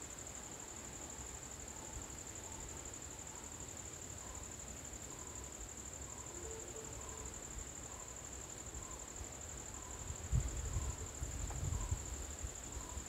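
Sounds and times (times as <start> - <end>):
insects trilling: 0.1 - 13.0.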